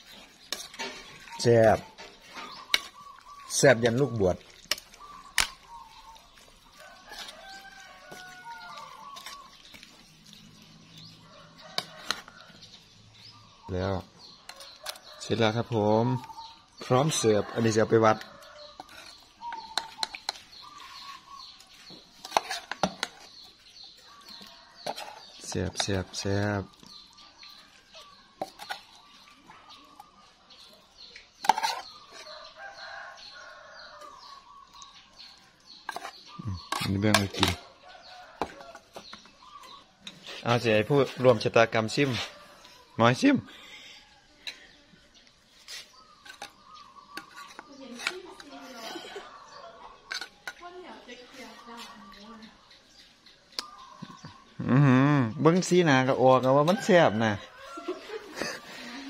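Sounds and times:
metal ladle scraping in a pot: 0:00.0 - 0:12.6, 0:17.8 - 0:23.4, 0:24.8 - 0:25.9, 0:31.4 - 0:32.4, 0:35.8 - 0:37.6, 0:45.5 - 0:49.3, 0:50.0 - 0:50.6
birds calling: 0:00.0 - 0:59.0.

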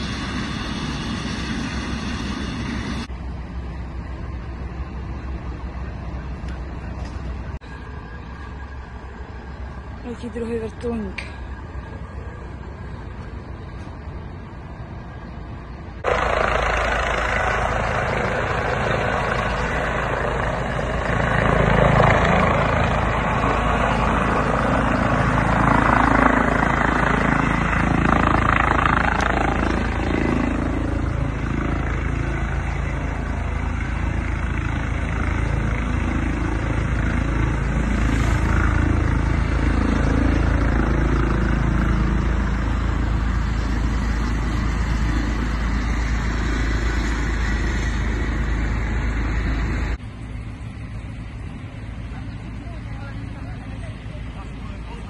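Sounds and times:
helicopter rotor and engine: 0:00.0 - 0:55.0.

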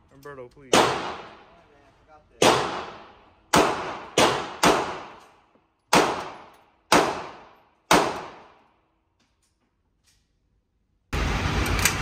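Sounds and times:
pistol shots ringing indoors: 0:02.4 - 0:08.9.

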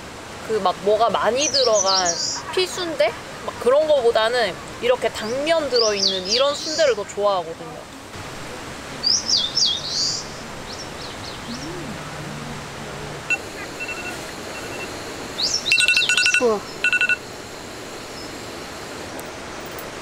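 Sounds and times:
birds whistling: 0:09.0 - 0:12.0, 0:13.3 - 0:17.2
bird rattling call: 0:13.5 - 0:17.2.

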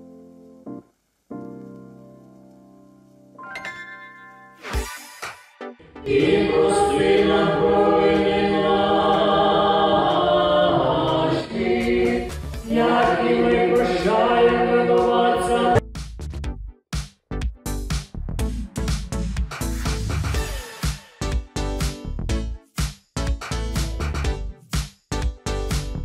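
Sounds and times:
choir singing held chords: 0:05.8 - 0:15.8
sharp choppy beats: 0:11.8 - 0:15.2.

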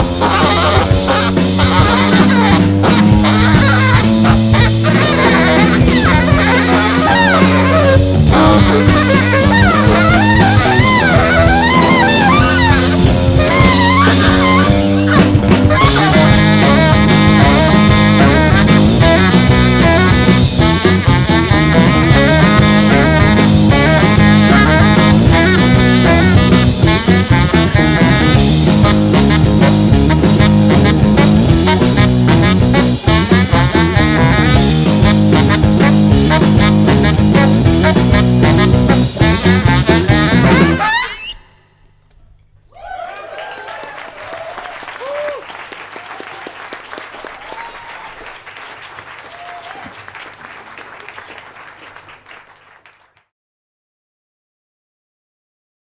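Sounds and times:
drum kit: 0:00.0 - 0:41.1
baritone guitar: 0:00.0 - 0:41.5
tenor saxophone lead line: 0:00.0 - 0:42.0
audience applauding: 0:42.8 - 0:53.3.

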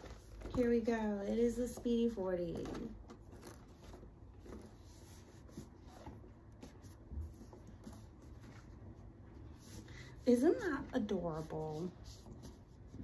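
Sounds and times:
handbag rustling: 0:00.0 - 0:08.5.

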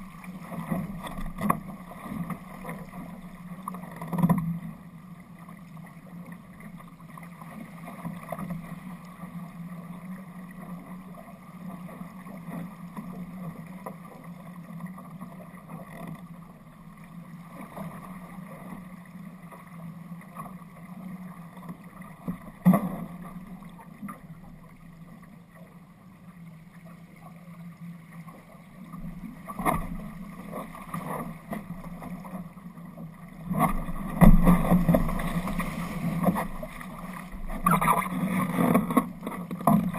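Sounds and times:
water rushing along a hull: 0:00.0 - 0:39.9.

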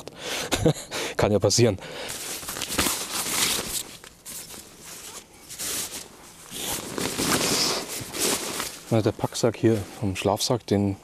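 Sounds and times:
synthetic fabric rustling: 0:02.1 - 0:09.8.

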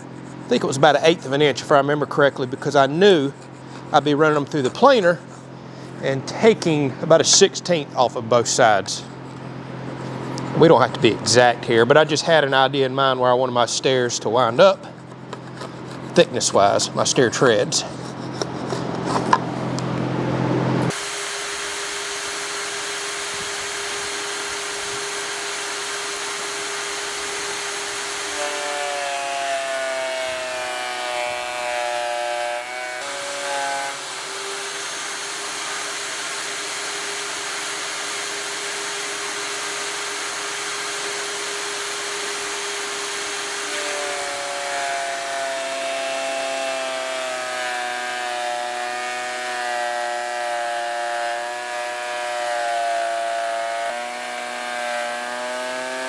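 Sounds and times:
planer cutting wood: 0:00.0 - 0:13.4, 0:14.2 - 0:56.0
thickness planer running: 0:00.0 - 0:56.0
scraper rubbing glue off wood: 0:15.0 - 0:16.4.

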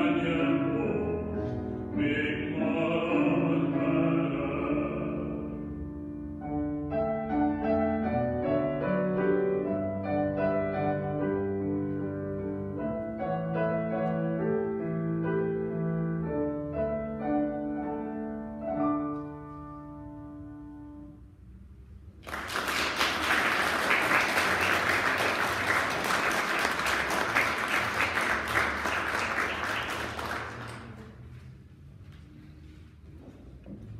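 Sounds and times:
grand piano notes ringing: 0:00.0 - 0:21.6
audience applauding: 0:22.2 - 0:31.3.

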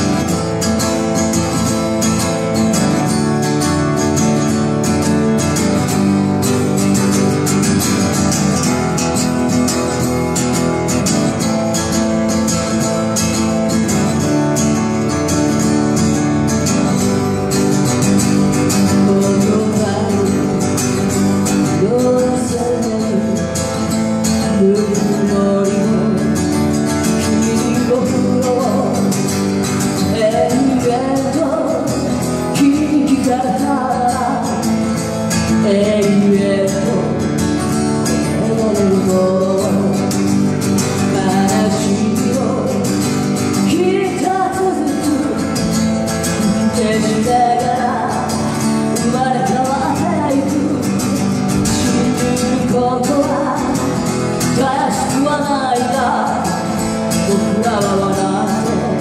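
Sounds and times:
strummed acoustic guitar: 0:00.0 - 0:59.0
woman singing: 0:16.7 - 0:59.0.

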